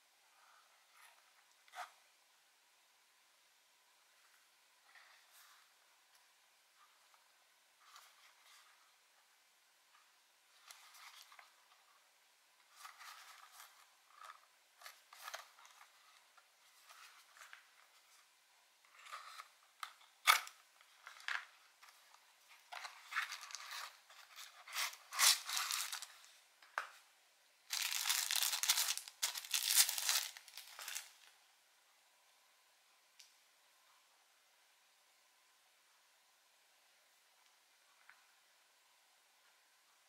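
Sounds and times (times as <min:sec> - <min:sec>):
cardboard rustling and scraping: 0:22.6 - 0:26.3.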